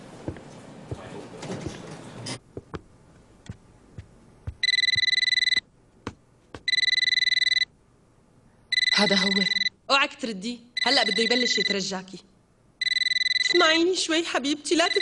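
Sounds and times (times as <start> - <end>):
busy room noise: 0.0 - 9.8
telephone ringtone trilling: 4.6 - 5.6, 6.7 - 7.7, 8.7 - 9.7, 10.8 - 11.6, 12.8 - 13.6.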